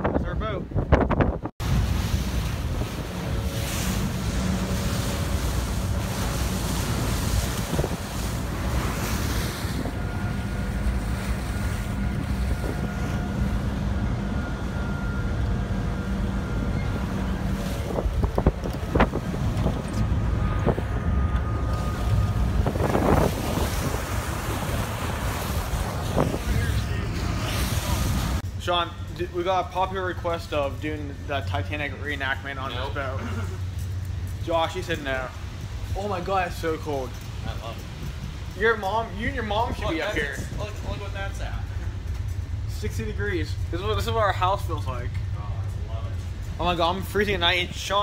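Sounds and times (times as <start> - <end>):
wind buffeting microphone: 0.0 - 28.4, 35.2 - 42.7
water rushing along hull: 0.7 - 48.0
ship engines droning: 1.6 - 48.0.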